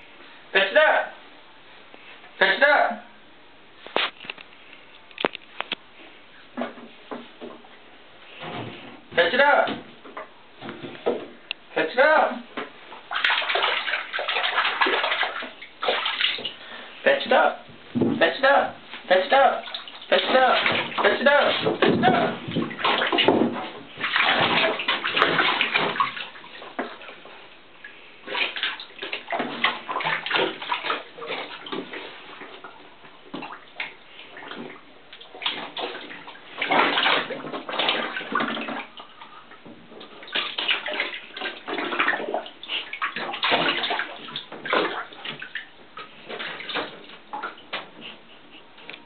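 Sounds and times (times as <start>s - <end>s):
puppy splashing in water: 12.9s - 16.7s, 19.0s - 48.8s.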